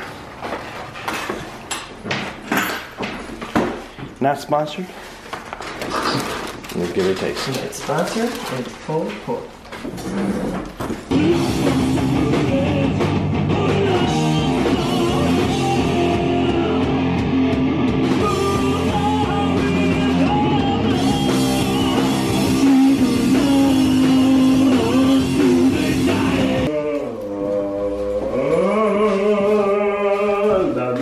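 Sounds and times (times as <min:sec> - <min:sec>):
drum kit: 0:11.0 - 0:26.7
person singing: 0:11.1 - 0:17.2, 0:18.1 - 0:31.0
electric guitar: 0:11.1 - 0:26.7
bass guitar: 0:11.1 - 0:26.8.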